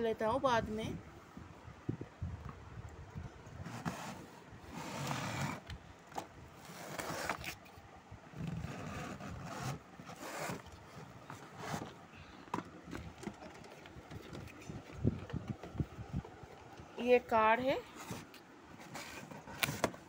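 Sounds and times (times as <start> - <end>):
cardboard box scraping and rustling: 3.6 - 5.6, 6.6 - 7.7, 8.4 - 12.1, 17.9 - 20.0.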